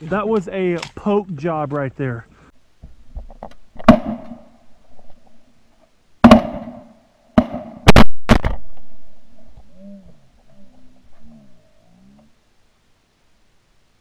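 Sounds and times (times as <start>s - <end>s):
shotgun shots with echo: 3.8s - 4.5s, 6.2s - 8.6s.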